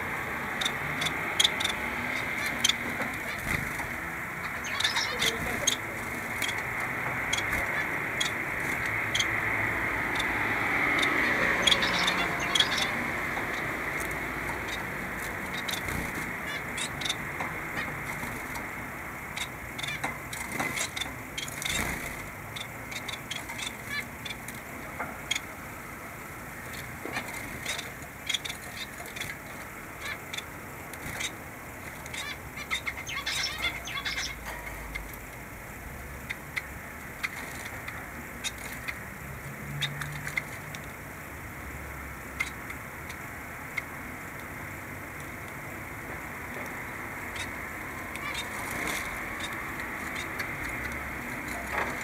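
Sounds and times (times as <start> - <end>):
finches chirping: 0.0 - 35.2, 42.2 - 52.0
steady low hiss: 0.0 - 52.0
wing flutters: 2.4 - 9.3.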